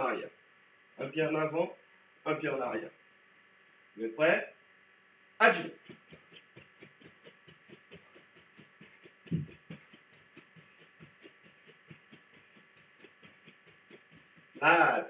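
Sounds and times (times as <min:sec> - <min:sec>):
rhythmic footfalls on a floor: 0:05.6 - 0:14.6.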